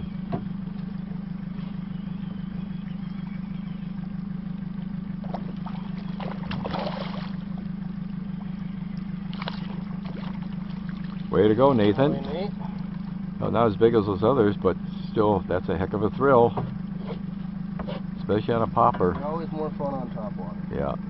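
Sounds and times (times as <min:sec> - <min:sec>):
boat motor humming: 0:00.0 - 0:21.0
fish splashing at water surface: 0:05.2 - 0:07.6, 0:09.0 - 0:11.3.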